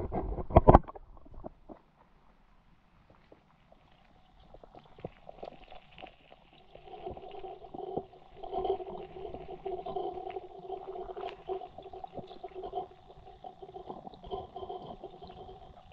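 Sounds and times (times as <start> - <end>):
small underwater clicks and knocks: 0.0 - 15.9.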